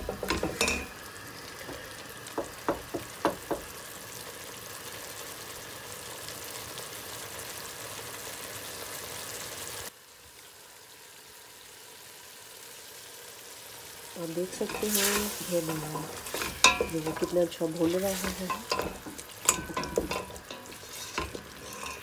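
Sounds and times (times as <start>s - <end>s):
wooden spatula knocking pot: 0.0s - 0.9s, 1.6s - 3.7s, 14.7s - 22.0s
meat sizzling in oil: 0.0s - 22.0s.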